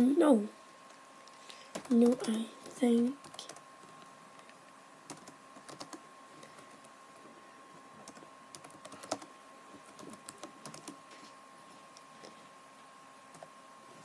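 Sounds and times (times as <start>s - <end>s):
typing on computer keyboard: 1.7s - 2.3s, 5.1s - 6.7s, 8.0s - 9.3s, 9.9s - 11.0s.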